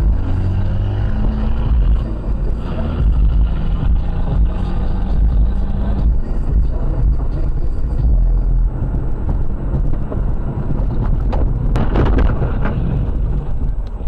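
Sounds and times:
loud rush of noise: 0:00.0 - 0:14.0
vehicle engine and road rumble: 0:00.0 - 0:14.0
wind buffeting microphone: 0:06.6 - 0:14.0.

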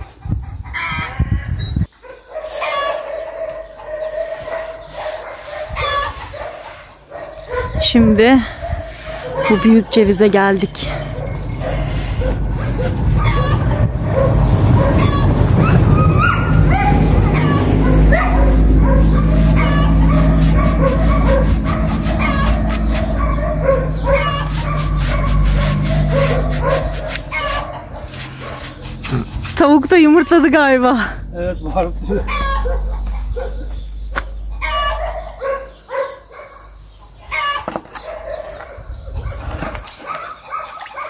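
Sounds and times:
hen cackling: 0:00.0 - 0:01.5, 0:02.5 - 0:04.5, 0:05.7 - 0:06.7, 0:12.3 - 0:29.3, 0:32.0 - 0:35.8, 0:37.0 - 0:37.8
dog whining and yipping: 0:10.8 - 0:28.6.

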